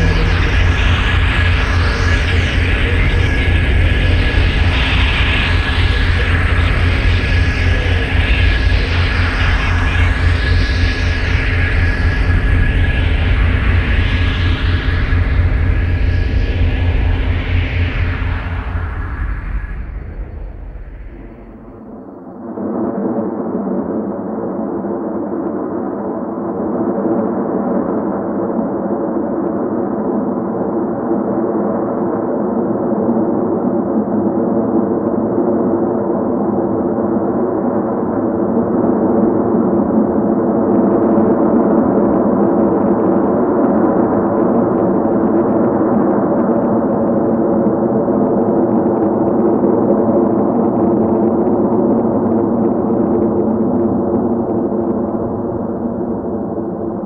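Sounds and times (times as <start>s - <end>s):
ambient drone of layered tones: 0.0s - 10.8s.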